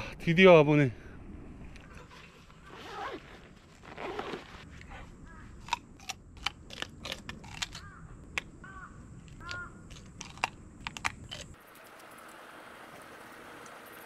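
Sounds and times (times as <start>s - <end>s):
bird calls: 4.9s - 5.6s, 7.7s - 9.9s.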